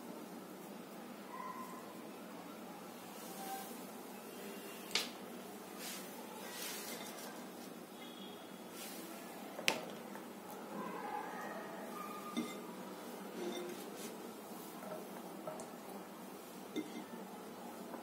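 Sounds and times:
faint steady hiss: 0.0s - 18.0s
glass bowl and dishes clinking: 12.3s - 12.7s, 13.4s - 13.8s, 16.7s - 17.2s.

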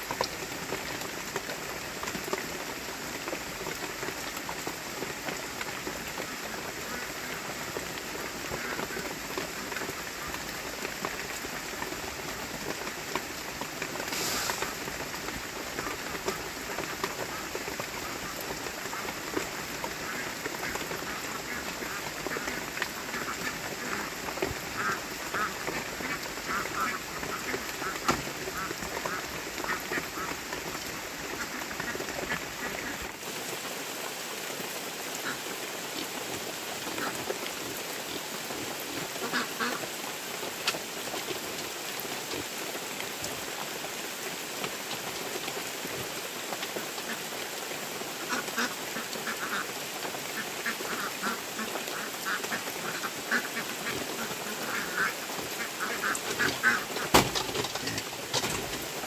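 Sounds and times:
rain hissing: 0.0s - 59.0s
ducks quacking: 19.9s - 30.5s, 35.2s - 35.4s, 39.2s - 39.8s, 48.2s - 49.7s, 50.4s - 58.8s
wood knocking against bamboo: 56.4s - 58.8s.

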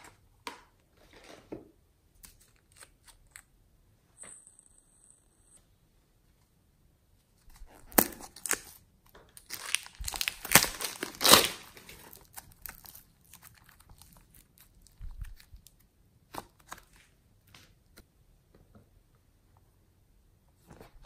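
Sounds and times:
plastic bag crinkling: 9.4s - 15.7s.

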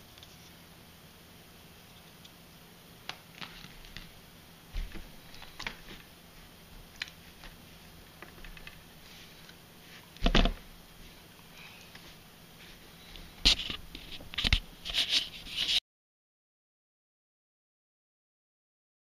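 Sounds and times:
plastic parts clicking and tapping: 8.2s - 8.8s.

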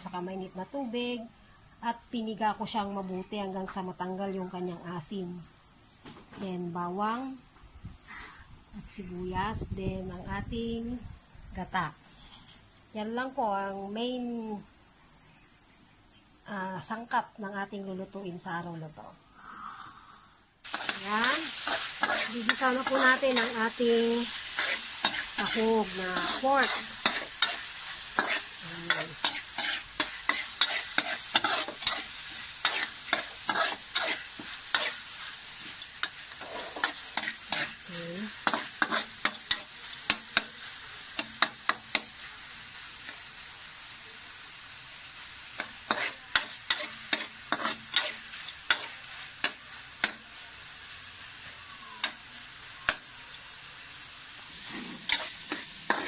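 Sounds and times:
meat sizzling in a frying pan: 20.6s - 56.0s
metal spoon scraping a pan: 20.7s - 42.2s, 45.6s - 50.2s, 54.5s - 56.0s.

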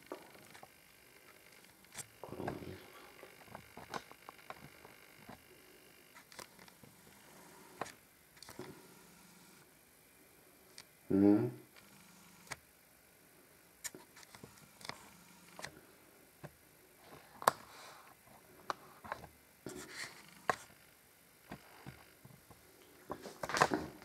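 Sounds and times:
short low vocal sound: 11.1s - 11.7s.

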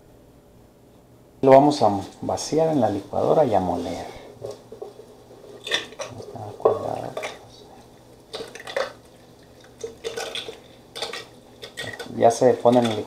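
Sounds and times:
spatula scraping a bowl: 3.2s - 7.9s, 9.7s - 13.0s.

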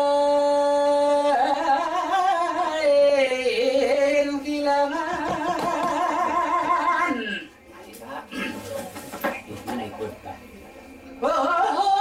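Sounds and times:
person singing with vibrato: 0.0s - 7.5s.

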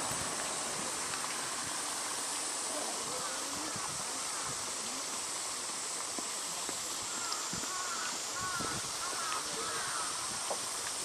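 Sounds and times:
stream flowing over rock: 0.0s - 11.0s
faint distant voices: 2.5s - 10.3s.

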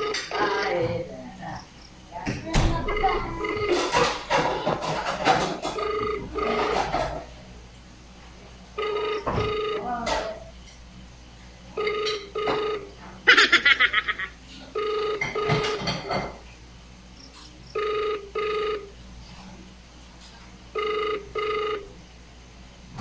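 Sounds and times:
telephone ringback tone: 0.0s - 0.9s, 2.8s - 4.4s, 5.4s - 7.2s, 8.8s - 10.3s, 11.7s - 12.9s, 14.7s - 16.1s, 17.8s - 19.0s, 20.7s - 22.0s.

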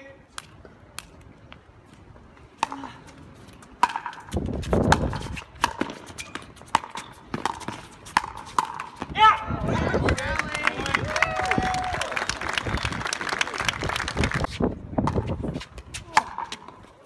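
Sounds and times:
ball bouncing on hard court: 3.8s - 9.1s
wind rumble on microphone: 4.2s - 5.7s, 9.0s - 16.2s.

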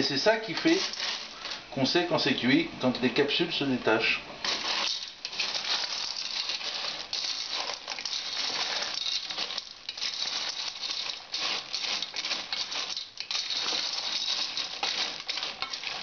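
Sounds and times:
shells rattling in steel pot: 0.5s - 1.6s, 4.4s - 16.0s.

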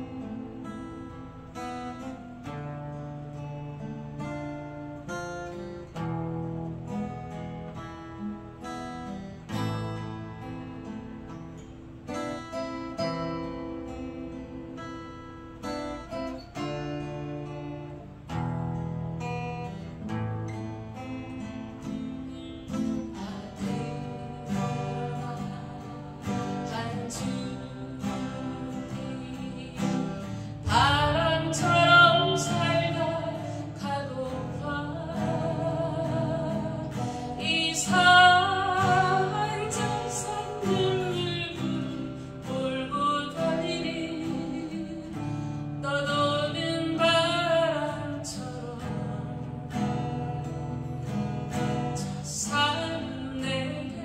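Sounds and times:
woman singing: 0.0s - 5.6s, 19.6s - 54.0s
strummed acoustic guitar: 0.0s - 54.0s.

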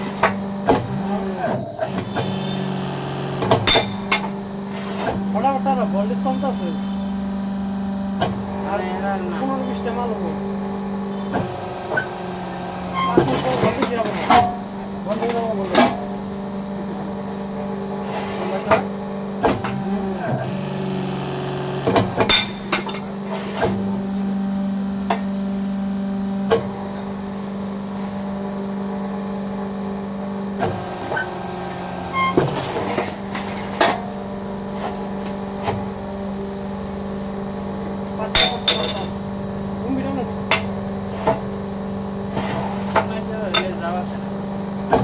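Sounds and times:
electric motor humming: 0.0s - 25.0s, 30.5s - 38.0s.

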